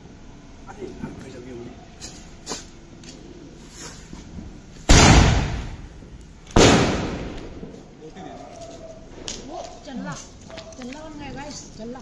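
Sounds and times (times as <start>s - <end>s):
firework bangs: 4.9s - 7.9s.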